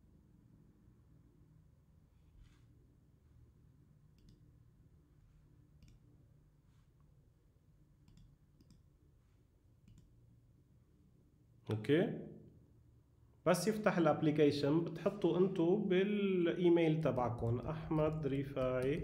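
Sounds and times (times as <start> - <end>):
computer mouse clicks: 4.1 - 4.6, 5.7 - 6.2, 8.0 - 8.9, 9.8 - 10.2, 17.2 - 19.0.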